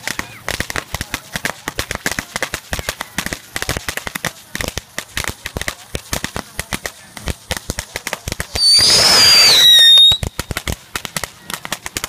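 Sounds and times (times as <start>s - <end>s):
firecrackers popping: 0.0s - 12.0s
firework hissing whistle: 8.4s - 10.7s.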